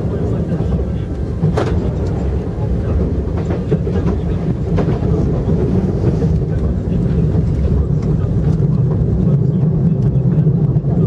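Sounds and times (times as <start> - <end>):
train rumble from inside: 0.0 - 11.0.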